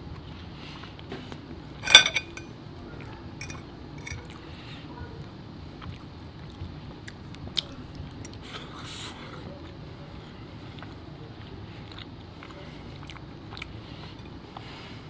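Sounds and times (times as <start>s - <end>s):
fork clinking on china plate: 1.8s - 2.5s, 3.4s - 4.3s.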